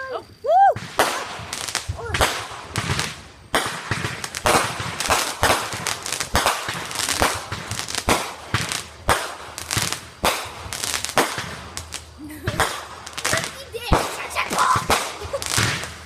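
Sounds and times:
fireworks bangs: 0:00.0 - 0:16.0
smaller firework cracks: 0:00.6 - 0:16.0.

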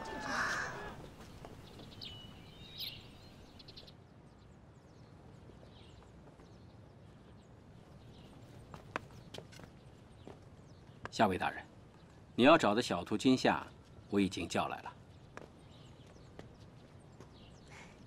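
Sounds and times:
bird chirps: 0:01.5 - 0:03.9.

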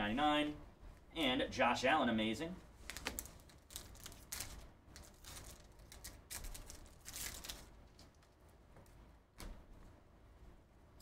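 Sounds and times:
foil wrapper crinkling and tearing: 0:02.8 - 0:08.3.

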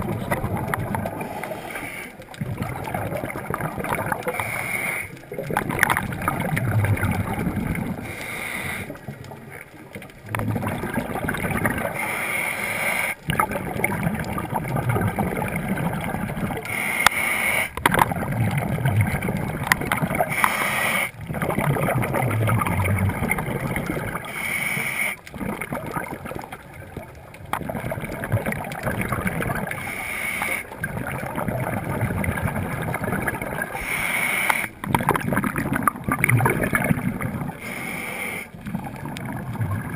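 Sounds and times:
bubbling on exhale: 0:00.0 - 0:39.9
regulator hiss on inhale: 0:01.2 - 0:02.2, 0:04.3 - 0:05.2, 0:08.0 - 0:09.0, 0:11.9 - 0:13.2, 0:16.6 - 0:17.8, 0:20.3 - 0:21.2, 0:24.3 - 0:25.3, 0:29.8 - 0:30.8, 0:33.7 - 0:34.8, 0:37.6 - 0:38.6.

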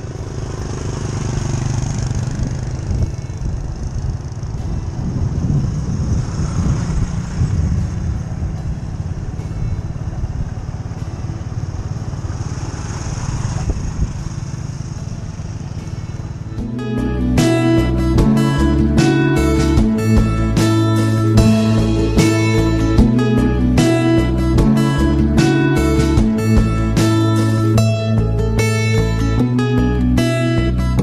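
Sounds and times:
motorcycle engine running: 0:00.0 - 0:31.0
wind rumbling on microphone: 0:00.8 - 0:16.4.

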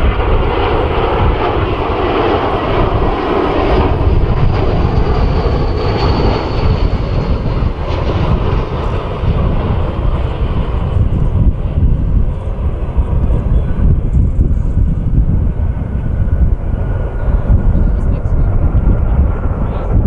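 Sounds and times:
jet engine roar: 0:00.0 - 0:20.0
wind rumble on microphone: 0:00.0 - 0:20.0.

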